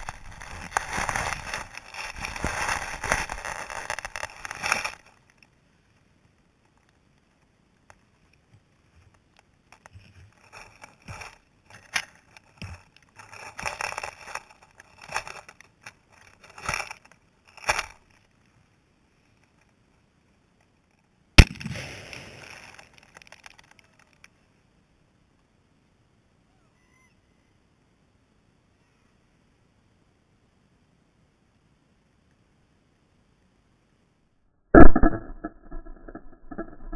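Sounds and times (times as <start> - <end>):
dry grass crackling and rustling: 0.0 - 18.6, 21.4 - 24.4.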